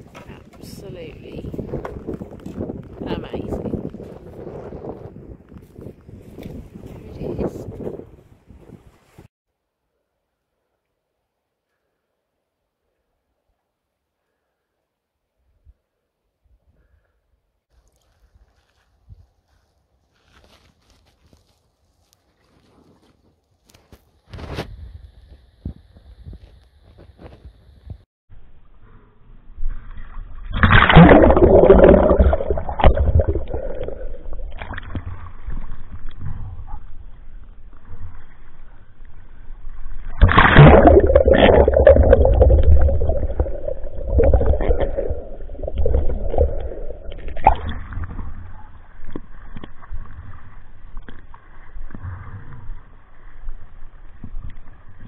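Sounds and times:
muffled water splashing and sloshing: 29.5s - 55.0s.

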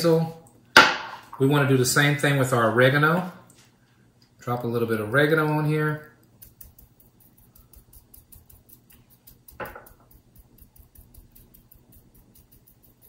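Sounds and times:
fingers patting fish fillet: 6.3s - 13.0s.

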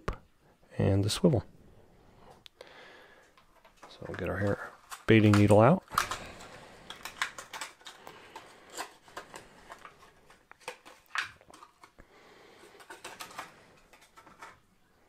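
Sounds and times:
plastic packet clicking: 4.9s - 9.9s.

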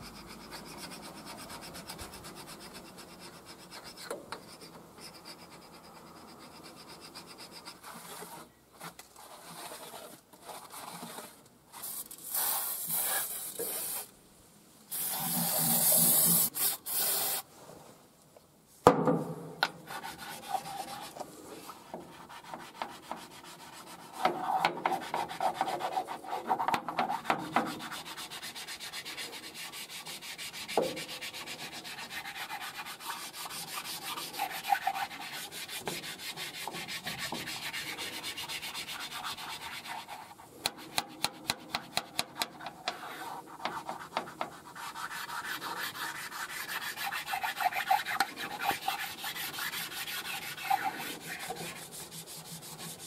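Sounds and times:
hand scraper scraping metal: 21.7s - 53.0s
abrasive block rubbing metal: 22.4s - 53.0s.

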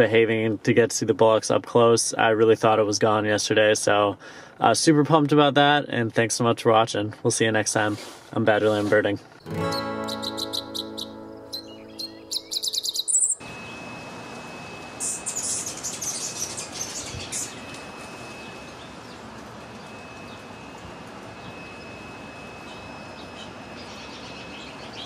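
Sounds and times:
outdoor hiss: 0.0s - 10.4s
guitar music: 9.4s - 13.4s
faint steady high tone: 9.5s - 25.0s
finches chirping: 9.6s - 13.4s, 15.0s - 17.7s.

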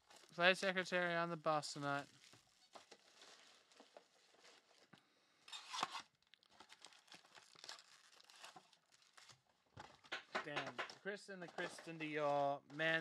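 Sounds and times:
cardboard tearing and foil crinkling: 0.0s - 0.9s, 1.8s - 4.9s, 5.5s - 10.1s.

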